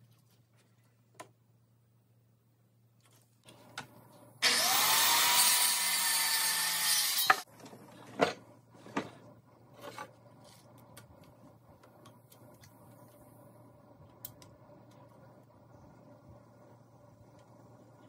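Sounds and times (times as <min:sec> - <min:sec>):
circular saw cutting wood: 0:04.4 - 0:07.5.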